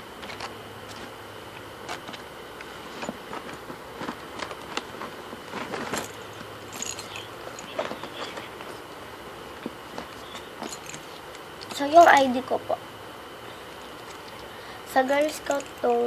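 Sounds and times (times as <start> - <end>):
packing handling noise: 0.1 - 8.9, 9.5 - 11.8.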